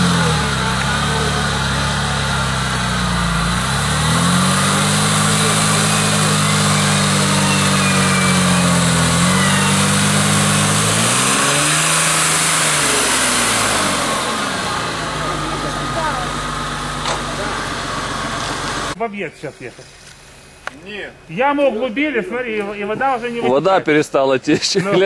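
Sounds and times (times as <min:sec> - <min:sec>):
engine revving under load: 0:00.0 - 0:19.0
wheels churning mud: 0:00.0 - 0:19.0.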